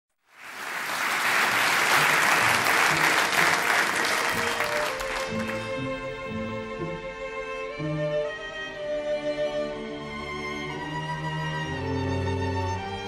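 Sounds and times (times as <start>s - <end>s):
audience applauding: 0.2s - 5.8s.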